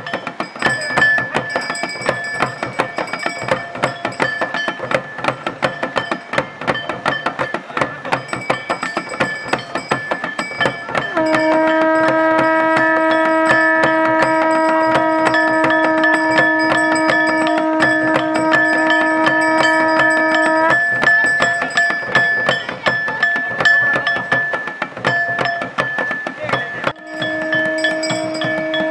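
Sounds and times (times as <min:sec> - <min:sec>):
drums beaten rapidly: 0:00.0 - 0:28.9
conch shell blown: 0:10.9 - 0:22.2, 0:26.9 - 0:28.9.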